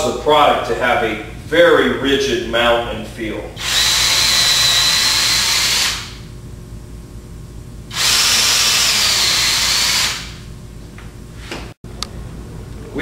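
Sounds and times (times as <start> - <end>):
cordless drill whining: 3.6 - 6.2, 7.9 - 10.4.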